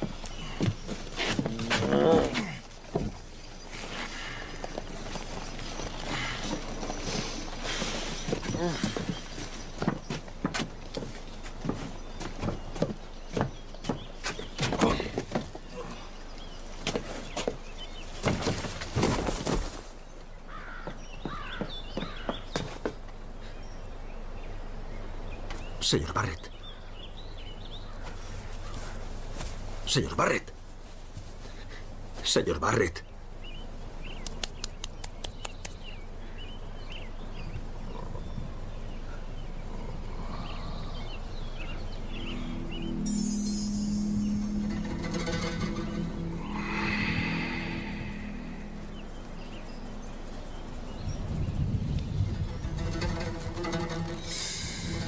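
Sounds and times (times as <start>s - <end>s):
birds chirping: 0.0s - 30.8s, 31.5s - 55.0s
low music notes: 41.8s - 51.3s, 52.2s - 55.0s.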